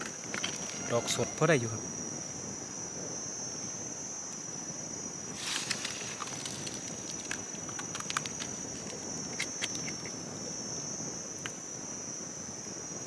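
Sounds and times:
high-pitched insect drone: 0:00.0 - 0:13.0
dry leaves rustling and crackling: 0:05.3 - 0:09.0
small clicks and snaps: 0:05.6 - 0:10.2.

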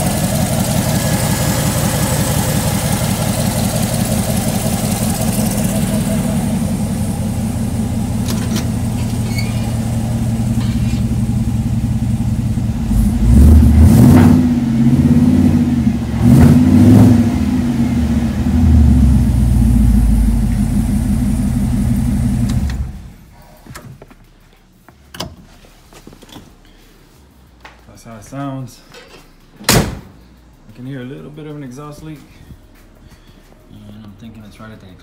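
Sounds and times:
car engine idling and revving: 0:00.0 - 0:23.3.

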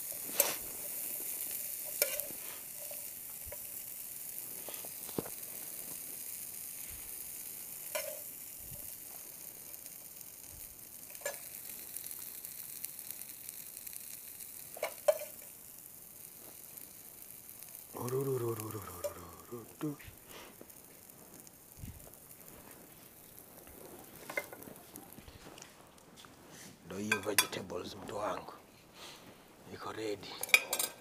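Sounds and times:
vegetables sizzling in a frying pan: 0:00.0 - 0:31.0
metal spoon clinking on pan: 0:30.4 - 0:31.0.

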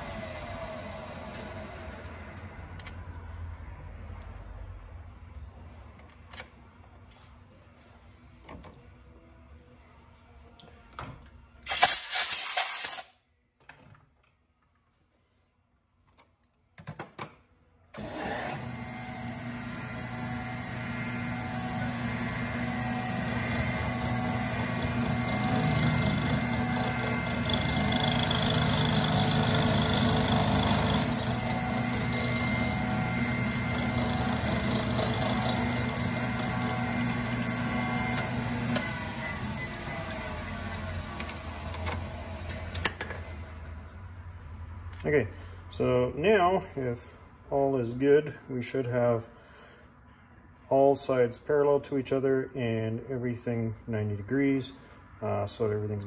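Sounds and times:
lathe mill motor running: 0:18.0 - 0:42.8.

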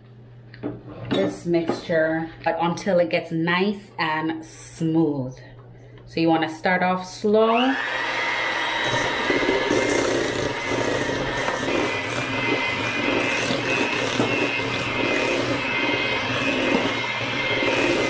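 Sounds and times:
electric hand mixer whining: 0:07.5 - 0:18.0.

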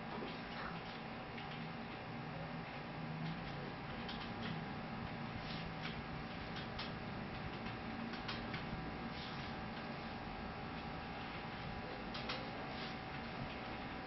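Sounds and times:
steady hiss and hum: 0:00.0 - 0:14.0.

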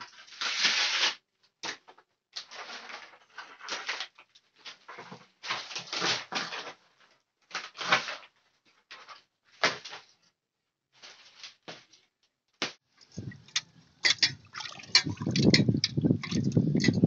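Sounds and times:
water splashing in a pot: 0:13.0 - 0:17.0.

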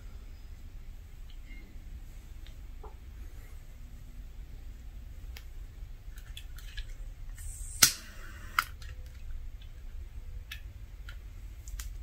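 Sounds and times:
short hiss: 0:07.4 - 0:08.6.

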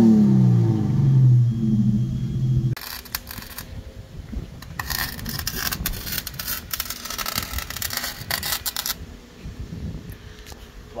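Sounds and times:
car engine running: 0:00.0 - 0:02.8
welder crackling: 0:02.8 - 0:03.8, 0:04.6 - 0:09.0.

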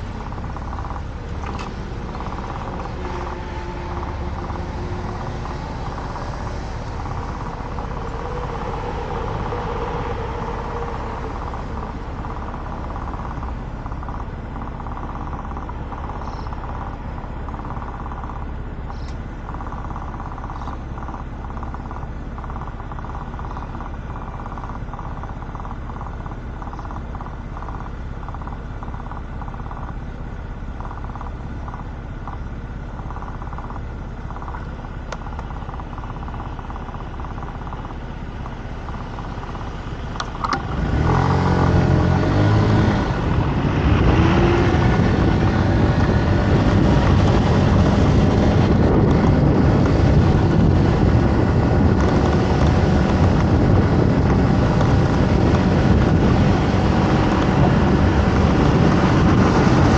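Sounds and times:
motor scooter engine idling: 0:00.0 - 0:40.7
road traffic: 0:00.0 - 0:59.9
vehicle passing: 0:01.5 - 0:13.2.

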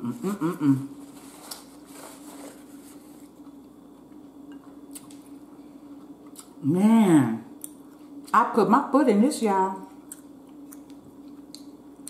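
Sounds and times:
person humming mm: 0:00.0 - 0:01.0
faint steady hum: 0:00.0 - 0:12.0.

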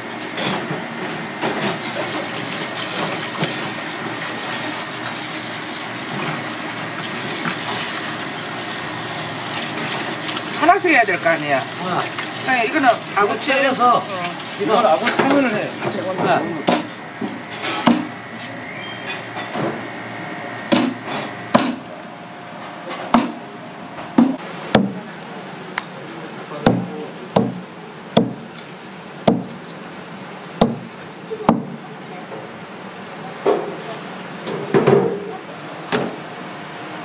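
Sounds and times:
cleaver chopping on wooden block: 0:24.2 - 0:25.0, 0:26.7 - 0:27.6, 0:28.2 - 0:28.4, 0:29.2 - 0:29.5, 0:30.6 - 0:30.9.

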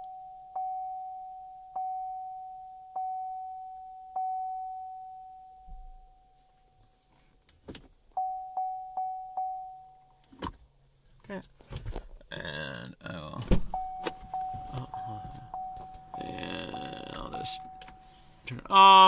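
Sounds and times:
dashboard warning chime pinging: 0:00.0 - 0:06.5, 0:08.1 - 0:10.2, 0:13.7 - 0:19.0.

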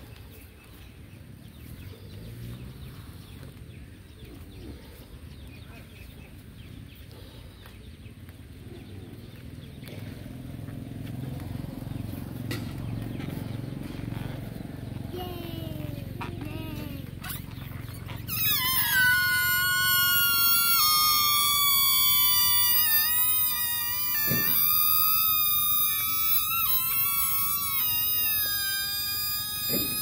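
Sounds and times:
breaths blown into balloons: 0:18.2 - 0:30.0.

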